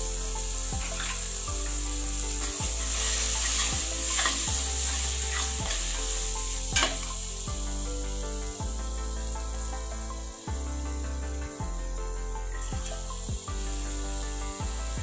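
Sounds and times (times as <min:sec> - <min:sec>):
spices sizzling in oil: 0:00.0 - 0:10.2, 0:12.6 - 0:15.0
steel spoon stirring: 0:00.6 - 0:01.5, 0:02.1 - 0:07.2.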